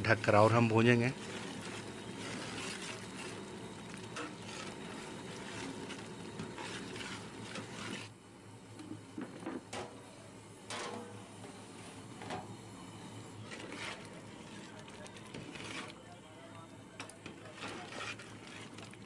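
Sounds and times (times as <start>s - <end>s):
curry frying: 0.0s - 8.2s, 8.8s - 19.0s
metal spatula scraping a pot: 1.1s - 8.1s, 13.4s - 16.1s, 17.0s - 19.0s
metal lid clanking: 10.7s - 11.2s.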